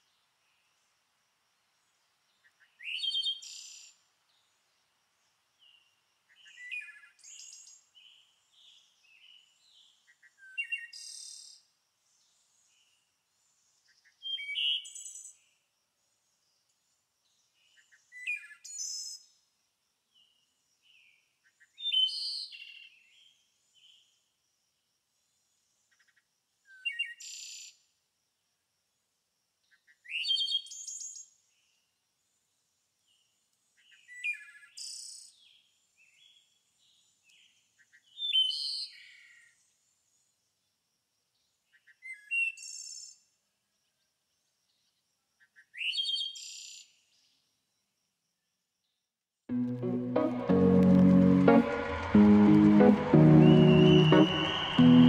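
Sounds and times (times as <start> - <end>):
songbird singing: 2.4 - 4.8, 5.6 - 11.2, 13.9 - 15.5, 33.1 - 39.6, 53.3 - 54.8.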